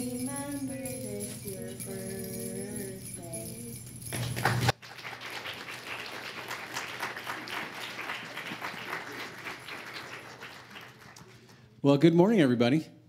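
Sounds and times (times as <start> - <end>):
children's song with music: 0.0 - 4.7
audience clapping: 4.1 - 11.8.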